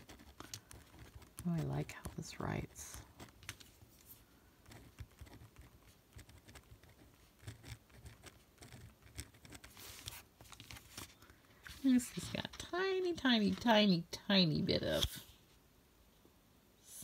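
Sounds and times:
gel pen scratching on paper: 0.0 - 3.5, 4.6 - 10.2.

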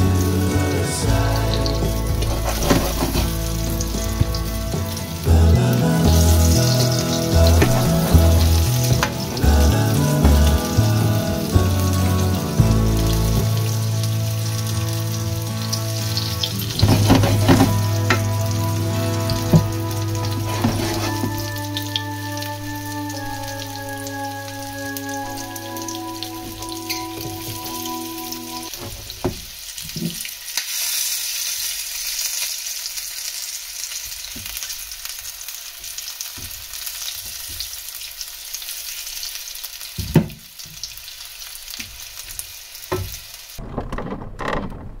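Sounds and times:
held musical notes: 0.0 - 28.8
food sizzling: 0.0 - 43.6.

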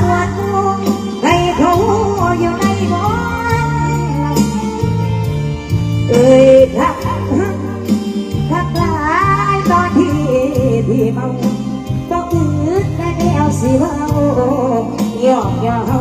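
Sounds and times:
band accompaniment: 0.0 - 16.0
bass line: 0.0 - 16.0
woman singing into microphone: 0.0 - 16.0.

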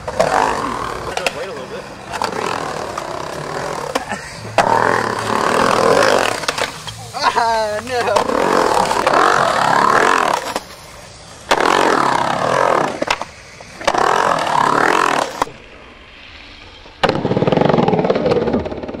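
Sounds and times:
skateboard wheels clattering on concrete: 0.0 - 7.0, 17.0 - 19.0.

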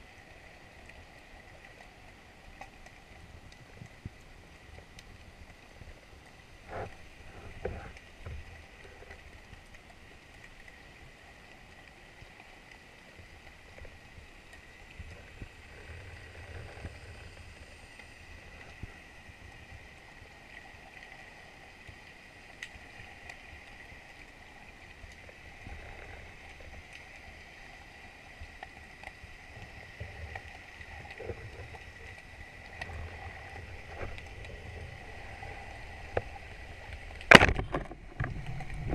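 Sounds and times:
faint clicks: 0.3 - 38.9
underwater water rumbling: 12.9 - 38.9.

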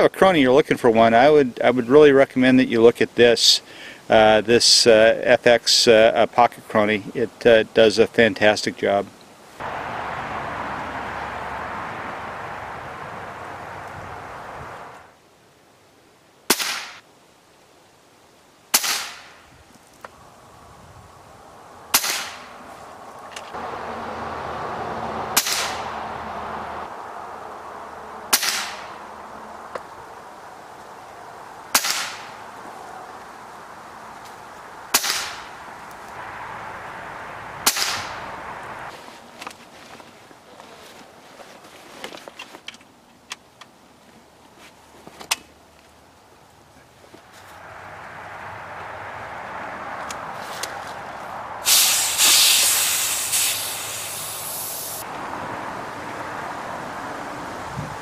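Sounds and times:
air rifle shots with echo: 16.5 - 17.0, 18.7 - 19.4, 21.9 - 22.5, 25.4 - 25.8, 28.3 - 28.9, 31.7 - 32.4, 34.9 - 35.5, 37.6 - 38.2
high-pressure air hissing: 51.6 - 55.1.

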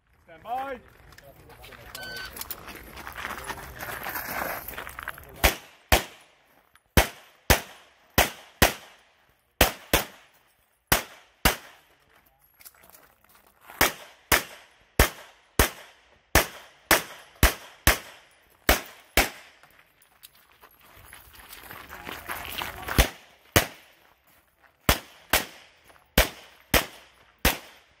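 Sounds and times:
pistol shots: 5.4 - 6.3, 7.0 - 10.3, 10.9 - 11.8, 13.8 - 19.6, 23.0 - 23.9, 24.9 - 28.0.

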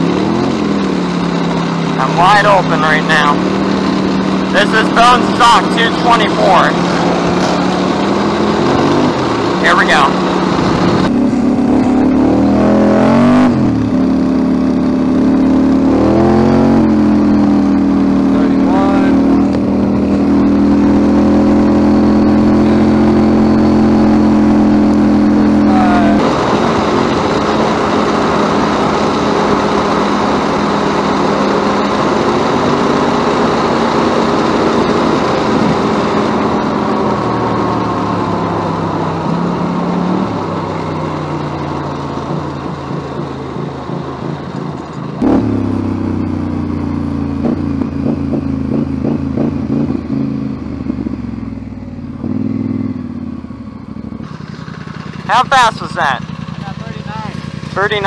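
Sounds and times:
go-kart engine at full throttle: 0.0 - 58.0
steady rushing noise: 0.1 - 14.0.

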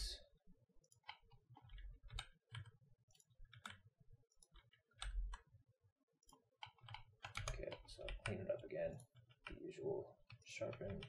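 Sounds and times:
mouse and keyboard clicks: 0.9 - 5.4, 6.3 - 8.4, 10.3 - 11.0.

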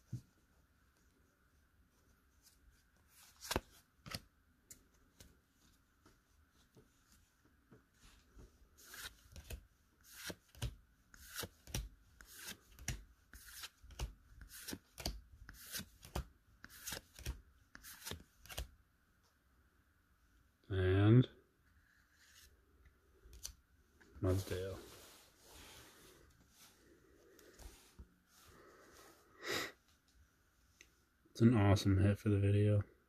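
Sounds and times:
trading cards sliding: 8.8 - 18.7.

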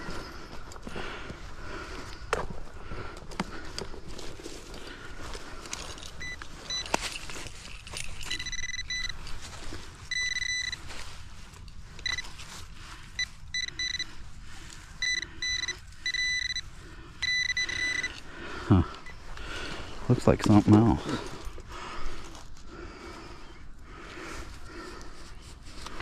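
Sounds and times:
high beep of pinpointer: 6.2 - 6.9, 8.3 - 9.2, 10.1 - 10.8, 12.0 - 12.2, 13.2 - 14.1, 15.0 - 16.6, 17.2 - 18.2.

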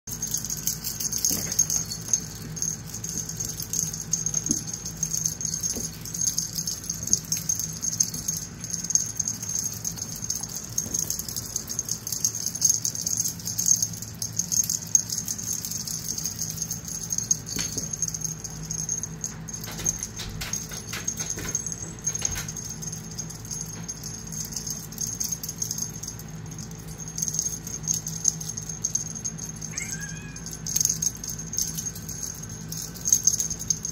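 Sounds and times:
paws clicking on wooden floor: 0.6 - 13.0, 17.2 - 24.7
kittens mewing: 29.6 - 30.8.

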